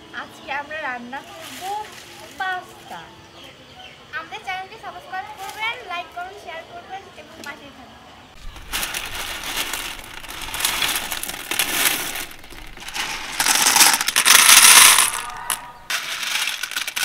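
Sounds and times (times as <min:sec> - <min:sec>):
dry pasta clattering into metal bowls: 0:08.4 - 0:17.0.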